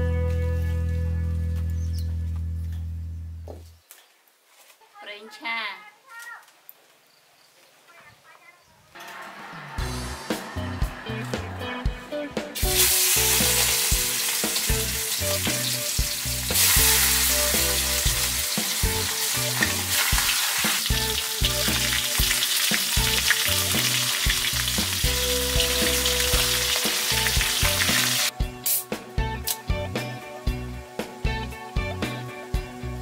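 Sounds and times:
fish sizzling in hot oil: 12.6 - 28.3.

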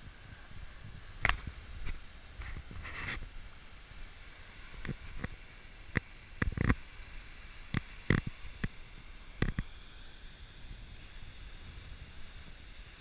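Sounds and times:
taps on camera housing: 9.4 - 9.7.

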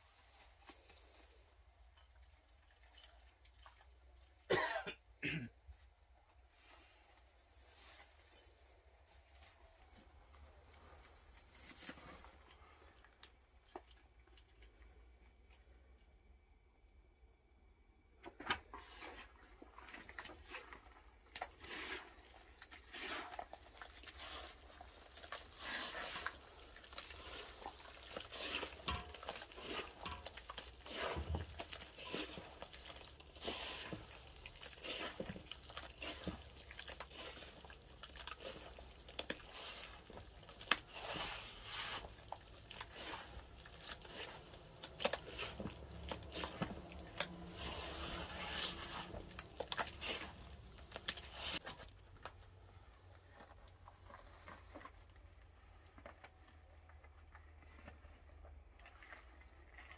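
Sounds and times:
hands kneading damp mix: 18.4 - 59.9.

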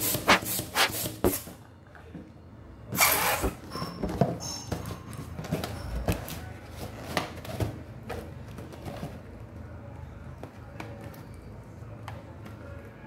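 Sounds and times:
balloon latex squeaking: 0.0 - 1.1, 3.0 - 3.8.

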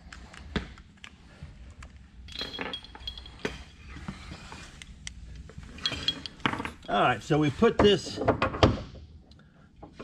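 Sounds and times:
metal jack clinking on concrete: 2.2 - 3.8, 5.7 - 7.0.

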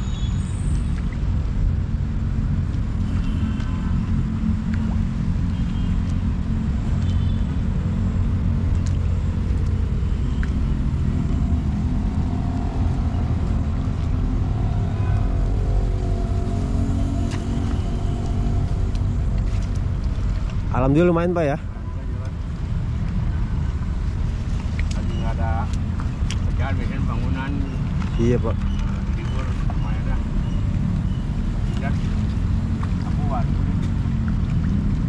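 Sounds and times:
low rumble of road traffic: 0.0 - 35.0.

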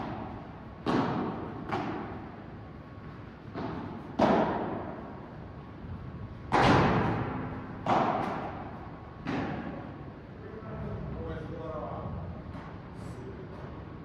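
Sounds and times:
padel ball hits echoing: 0.0 - 2.2, 3.5 - 5.0, 6.5 - 9.8.

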